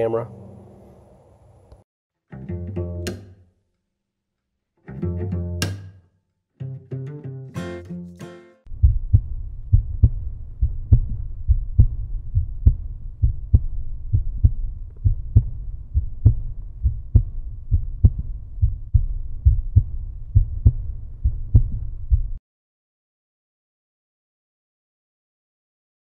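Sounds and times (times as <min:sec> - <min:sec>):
deep pulsing beat: 0:08.7 - 0:22.4
low rumble: 0:08.7 - 0:22.4.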